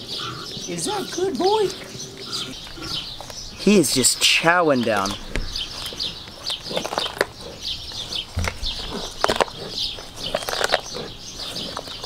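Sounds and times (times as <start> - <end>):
high chirping: 0.0 - 12.0
lion crunching bones: 1.8 - 3.6, 4.8 - 12.0.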